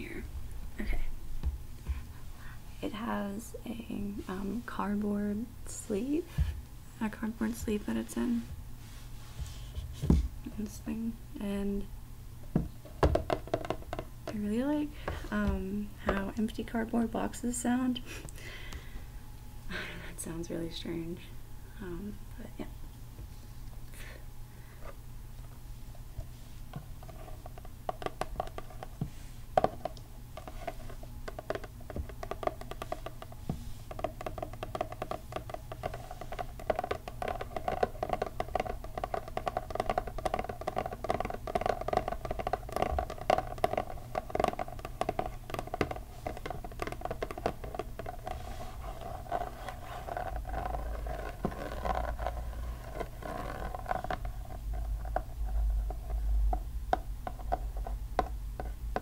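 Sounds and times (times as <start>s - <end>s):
fingernails tapping on cardboard: 12.6s - 14.1s, 27.1s - 54.2s.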